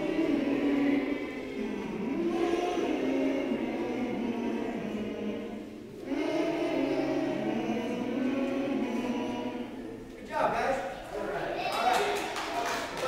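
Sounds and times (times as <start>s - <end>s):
children singing: 0.0s - 10.1s.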